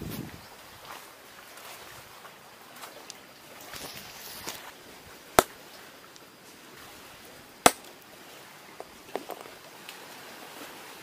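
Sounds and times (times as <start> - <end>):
light scraping: 3.6 - 4.8
stone knocking on rock: 7.6 - 7.9, 8.8 - 9.5.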